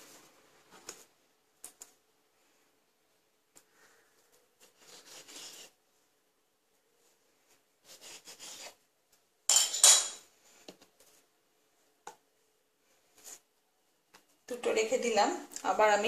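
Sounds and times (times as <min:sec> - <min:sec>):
knife cutting dough on board: 0:04.6 - 0:05.7, 0:07.8 - 0:08.8.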